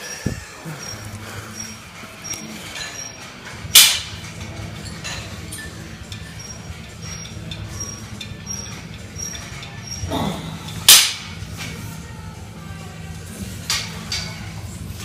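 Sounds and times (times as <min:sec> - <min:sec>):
gym weights clanking: 0:00.0 - 0:11.8
steady low hum: 0:00.0 - 0:15.0.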